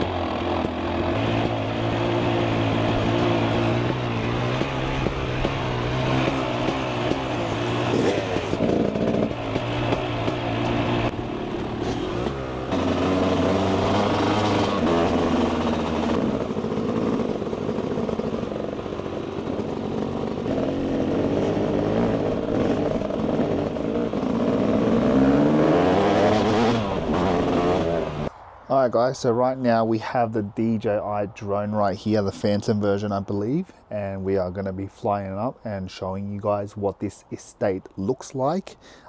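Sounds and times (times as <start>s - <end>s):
vehicle engines revving: 0.0s - 28.3s.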